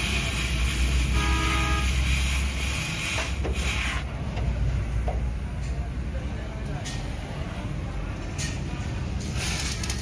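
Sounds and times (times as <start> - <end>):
cutting torch hissing: 0.0 - 4.1.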